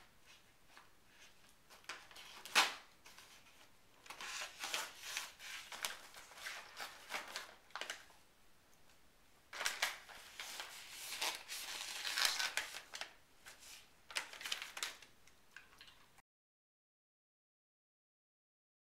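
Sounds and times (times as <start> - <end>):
plastic bag crinkling: 1.7 - 8.1, 9.5 - 16.0.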